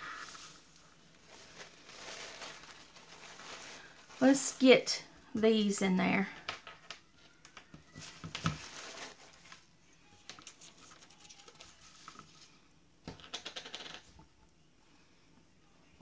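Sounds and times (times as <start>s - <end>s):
paper napkin rustling: 0.0s - 4.5s, 8.0s - 9.7s.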